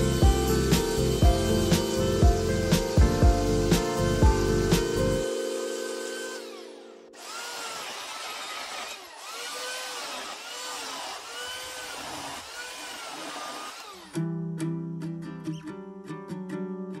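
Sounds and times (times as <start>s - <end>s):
background music: 0.0s - 7.2s
electric chainsaw cutting wood: 0.0s - 14.2s.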